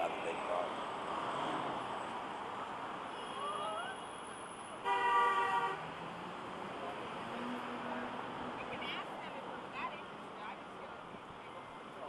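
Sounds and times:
city traffic noise: 0.0 - 12.0
car horn blast: 4.8 - 5.8.

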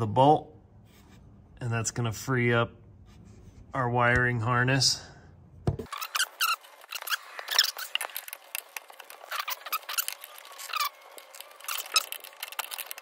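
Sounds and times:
plastic parts rubbing: 5.8 - 13.0
wrench clicking and squeaking: 5.9 - 13.0.

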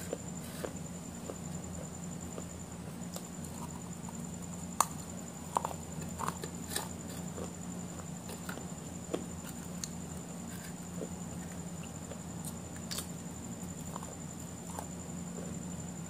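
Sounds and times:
person chewing: 4.8 - 15.6.

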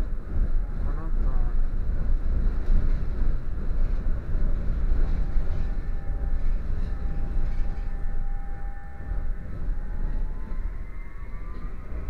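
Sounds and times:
tram rumbling on rails: 0.0 - 12.0
faint thin whine: 2.8 - 12.0.

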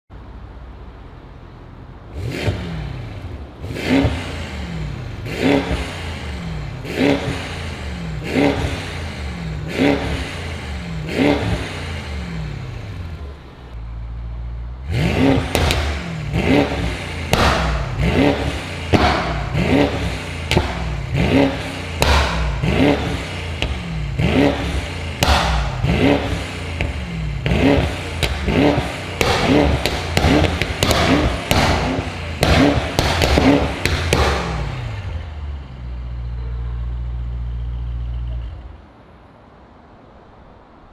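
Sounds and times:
car engine idling: 0.1 - 39.1
car engine revving: 0.6 - 38.8.

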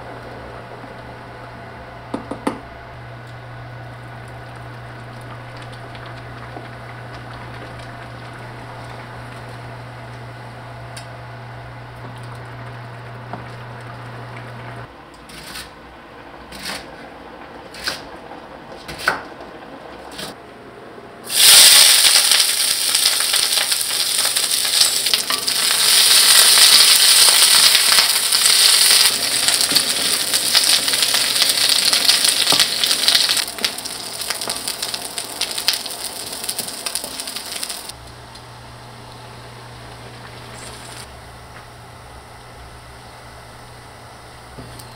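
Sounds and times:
food sizzling in hot pan: 21.3 - 38.0.

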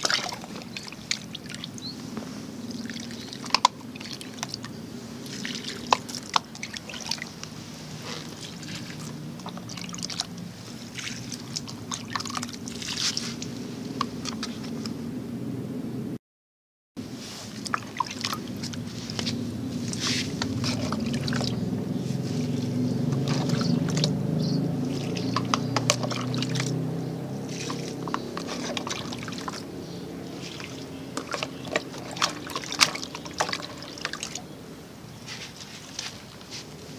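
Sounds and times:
water pouring onto soil: 0.0 - 1.9, 2.7 - 13.5, 17.3 - 21.6, 22.4 - 24.2, 24.8 - 34.4.

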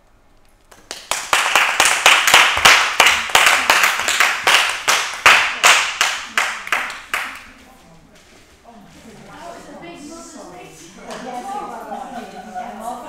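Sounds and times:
people clapping in rhythm: 0.7 - 7.6.

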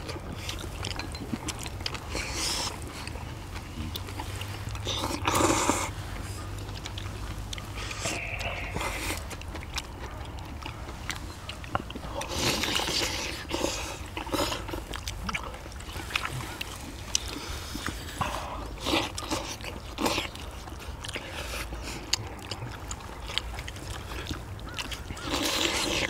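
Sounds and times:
slurping and chewing: 0.0 - 26.0
chopsticks clicking against bowls: 0.5 - 3.2.

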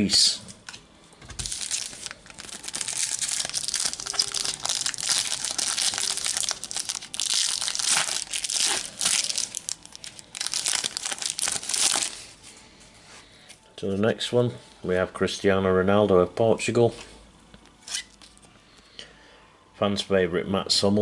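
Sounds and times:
card packet wrapper tearing and crinkling: 1.4 - 12.4.

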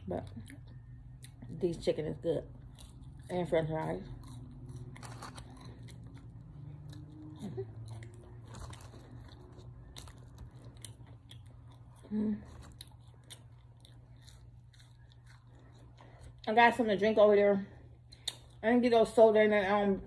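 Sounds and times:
chewing crunchy food: 0.0 - 16.9, 18.0 - 18.6.

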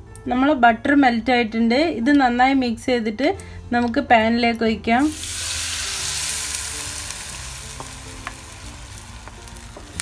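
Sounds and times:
batter sizzling in hot butter: 5.0 - 10.0.

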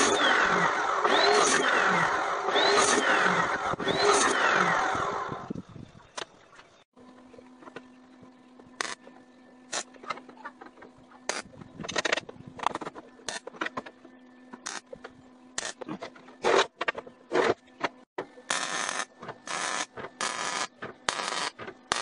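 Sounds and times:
electric grinder on metal: 0.0 - 5.5, 8.8 - 9.0, 18.5 - 22.0
sharp clicks and knocks: 8.8 - 22.0.

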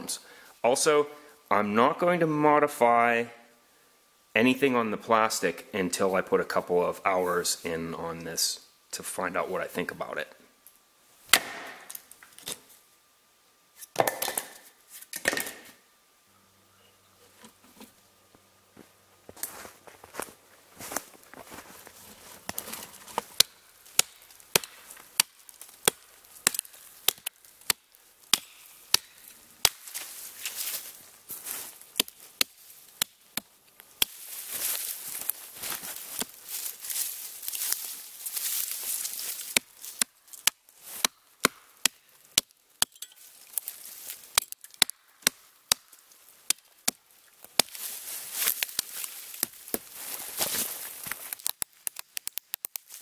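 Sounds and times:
hatchet chopping wood: 11.3 - 12.0, 13.9 - 14.6, 23.2 - 30.0, 32.0 - 34.2, 39.5 - 43.1, 44.4 - 47.0.

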